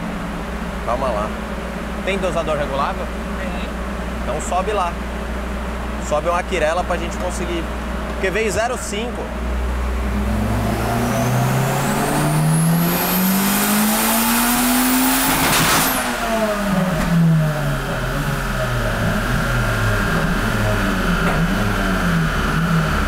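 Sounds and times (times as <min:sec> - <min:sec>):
high turbo whine: 0:00.0 - 0:23.0
car engine revving at full throttle: 0:09.2 - 0:23.0.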